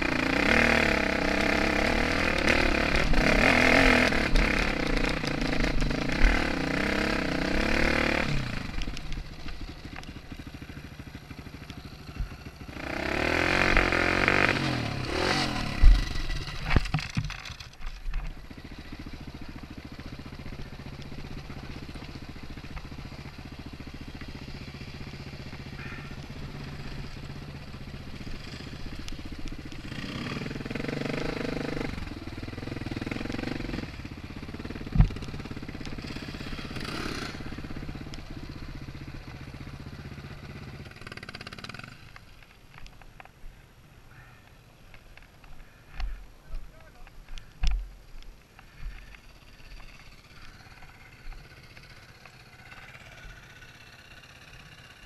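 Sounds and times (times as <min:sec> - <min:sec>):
motorcycle engine revving: 0:00.0 - 0:43.0, 0:45.2 - 0:55.0
motorcycle knocking over rocks: 0:15.7 - 0:20.3, 0:34.4 - 0:38.5.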